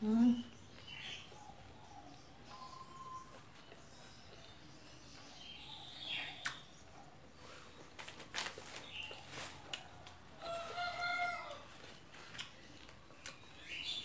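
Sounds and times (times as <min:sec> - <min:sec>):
rooster crowing: 0:10.4 - 0:11.7.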